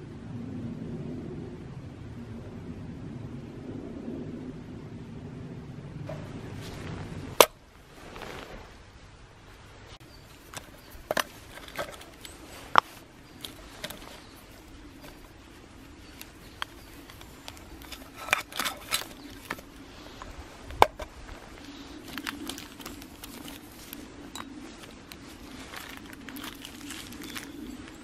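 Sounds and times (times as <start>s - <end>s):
cloth sack rustling: 7.8s - 8.8s, 22.0s - 28.0s.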